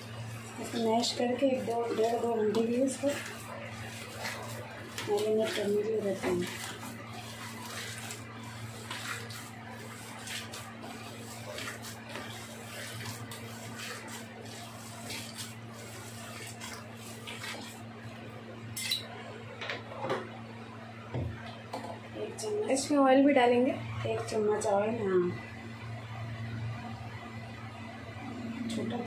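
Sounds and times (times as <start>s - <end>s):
steady low hum: 0.0s - 29.0s
hands mixing mince in bowl: 0.3s - 17.9s.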